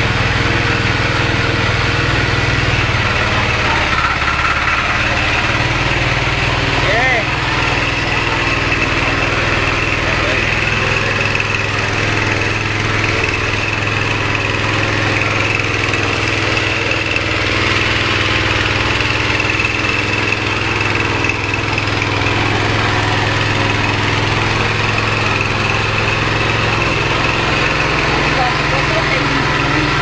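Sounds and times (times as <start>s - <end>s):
small petrol engine running: 0.0s - 30.0s.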